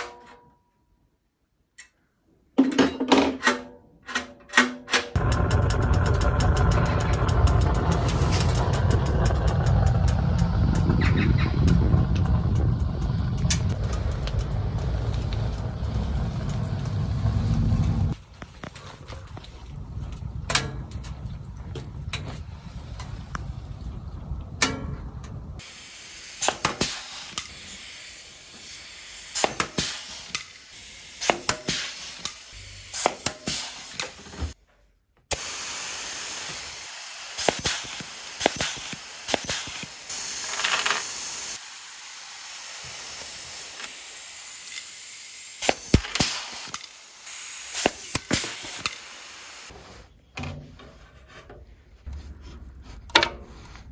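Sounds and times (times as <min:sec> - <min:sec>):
steady hiss: 0:25.6 - 0:34.6, 0:35.3 - 0:50.2
sharp clicks and knocks: 0:53.0 - 0:53.5.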